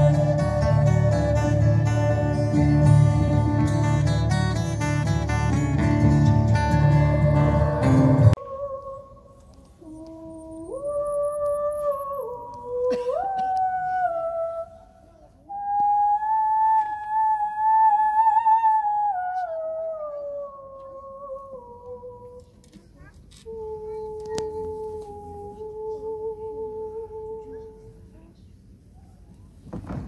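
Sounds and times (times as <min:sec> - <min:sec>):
music: 0:00.0 - 0:08.4
person humming wordless notes: 0:00.0 - 0:22.6, 0:23.4 - 0:28.3.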